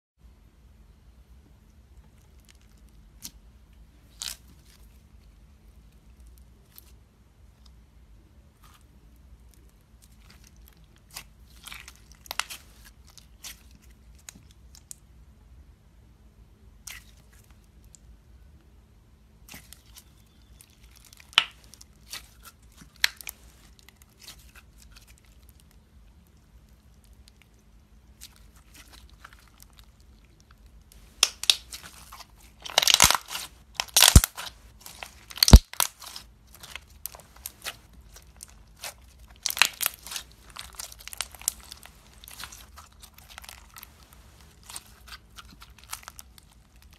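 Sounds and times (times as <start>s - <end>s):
slime crackling and popping: 9.6s - 15.0s, 19.5s - 46.9s.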